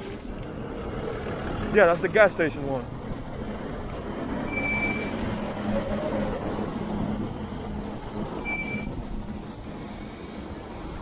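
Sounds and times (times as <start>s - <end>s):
heavy vehicle engine droning: 0.0s - 11.0s
street traffic: 0.0s - 11.0s
short high beep: 4.5s - 5.1s, 8.4s - 8.9s.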